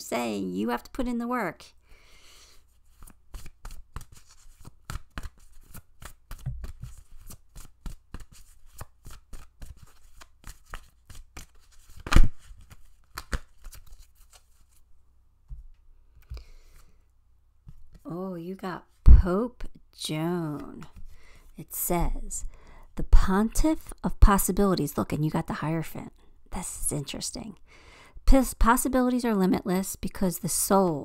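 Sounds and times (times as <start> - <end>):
cards being shuffled: 2.8 - 14.9
loud card snap: 12.0 - 12.5.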